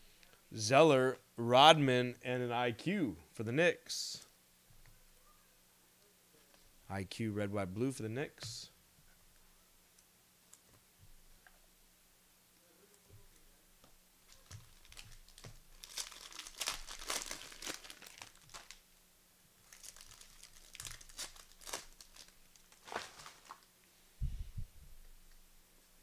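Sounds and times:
plastic wrapper crinkling and tearing: 14.3s - 18.8s, 19.6s - 23.7s.

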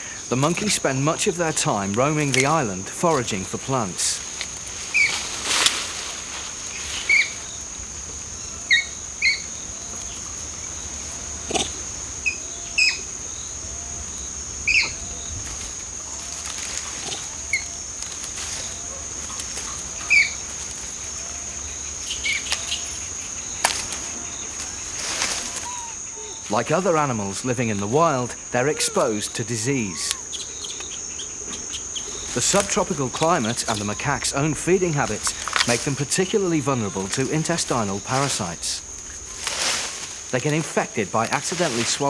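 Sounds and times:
insect drone: 0.0s - 42.0s
leaves and branches rustling: 0.0s - 42.0s
soft low animal call: 25.1s - 26.5s, 28.5s - 30.5s.

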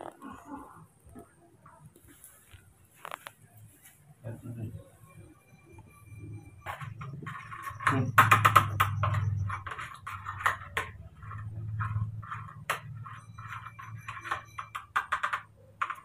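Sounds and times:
spoon scraping plastic tray: 6.7s - 16.0s.

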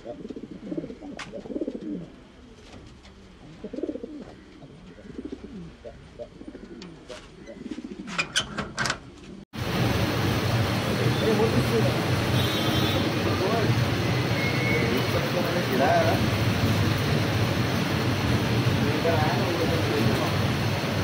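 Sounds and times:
pigeons cooing: 0.0s - 8.5s
steady rushing noise: 9.6s - 21.0s.

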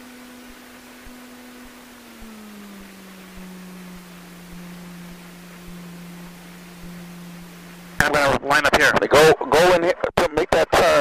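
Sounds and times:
light aircraft engine humming: 0.0s - 11.0s.

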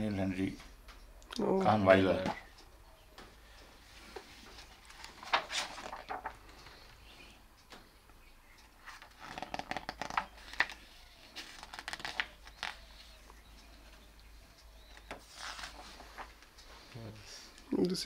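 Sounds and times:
glossy book pages rustling: 3.9s - 6.6s, 8.8s - 13.2s, 14.8s - 16.5s.

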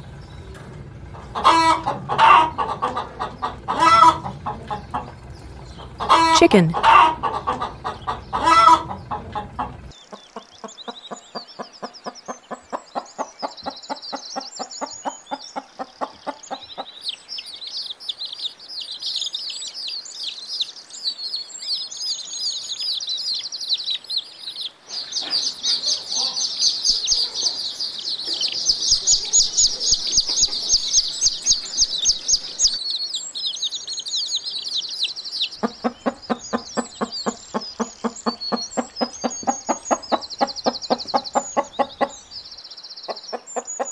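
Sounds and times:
hen clucking: 0.0s - 17.2s, 24.9s - 32.8s, 35.0s - 43.9s
high-pitched chick peeping: 0.0s - 43.9s
chicken squawk: 1.1s - 10.2s, 24.9s - 32.8s, 35.5s - 42.4s.

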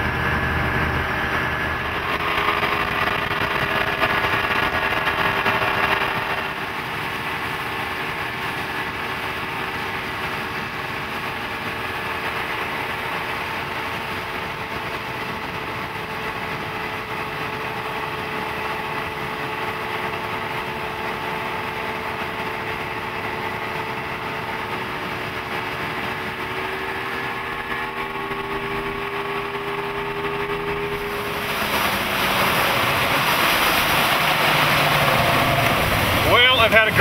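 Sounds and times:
outboard motor idling: 0.0s - 37.0s
rush of water and wind: 0.0s - 37.0s.

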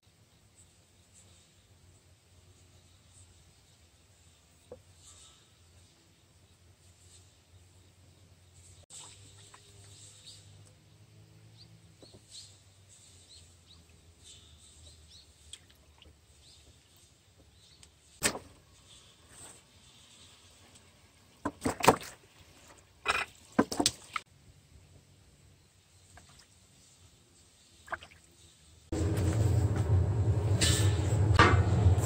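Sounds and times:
water splashing and sloshing: 8.9s - 10.1s, 18.2s - 18.6s, 20.6s - 24.3s, 27.8s - 28.4s
water dribbling and rubbing: 8.9s - 10.6s, 26.1s - 28.5s.

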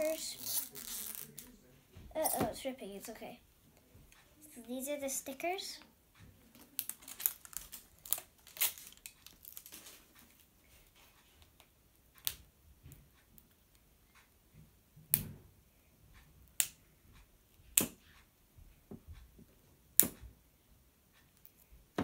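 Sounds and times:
wrapper crinkling and tearing: 0.0s - 1.5s, 6.6s - 10.2s
sharp clicks and crackles: 6.4s - 10.5s.

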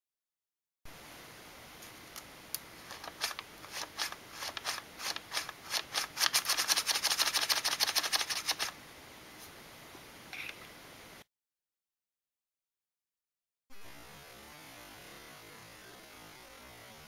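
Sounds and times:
folded paper crackling: 2.8s - 8.7s.

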